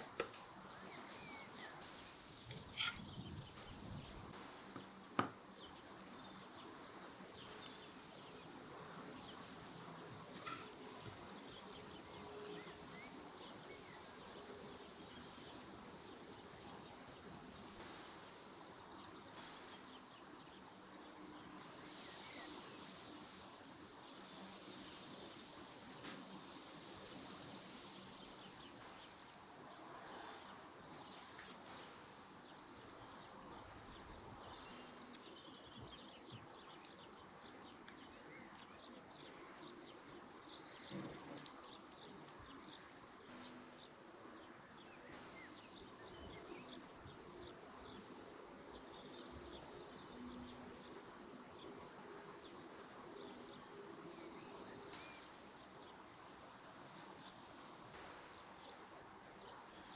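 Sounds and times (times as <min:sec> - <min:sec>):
small birds chirping: 0:00.0 - 0:59.9
soft knock: 0:04.8 - 0:05.4.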